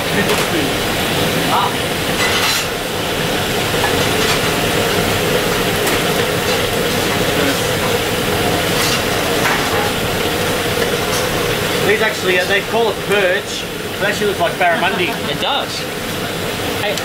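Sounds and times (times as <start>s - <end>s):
kitchen utensils clinking: 2.1s - 2.8s, 3.8s - 12.0s.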